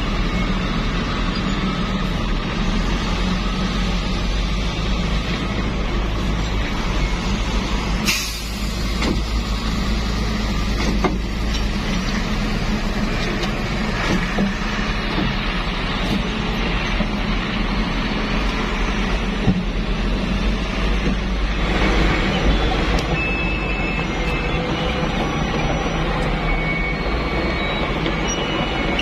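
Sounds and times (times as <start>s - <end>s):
diesel truck engine running: 0.0s - 29.0s
air hiss: 8.0s - 9.0s.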